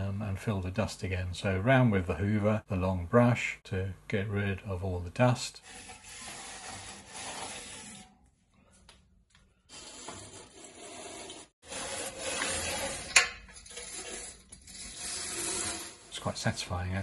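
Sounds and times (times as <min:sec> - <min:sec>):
brush bristles scraping metal: 0:05.6 - 0:08.2, 0:09.7 - 0:16.8.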